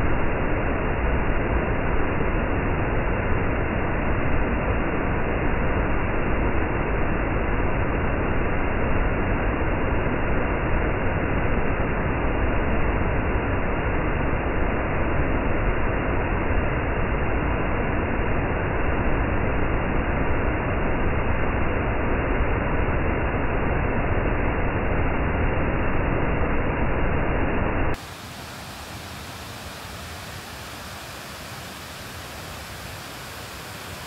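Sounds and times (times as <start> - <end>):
waterfall rushing: 27.9 - 34.0
bright water hiss: 28.0 - 34.0.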